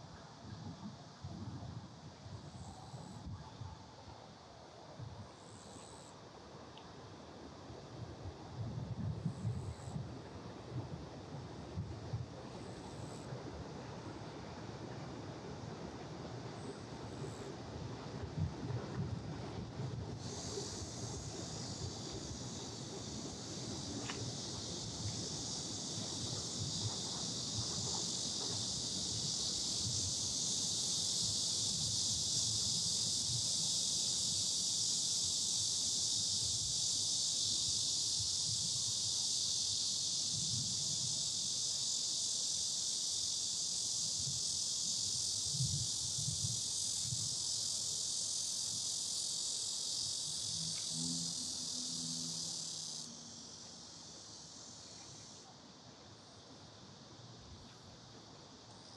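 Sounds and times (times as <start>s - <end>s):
cicadas buzzing: 5.4s - 6.2s, 12.4s - 14.1s, 16.4s - 58.9s.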